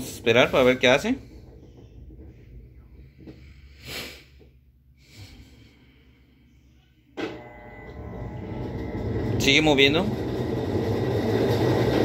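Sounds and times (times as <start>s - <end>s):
low faint hum: 0.0s - 12.0s
washing machine motor whine: 7.2s - 12.0s.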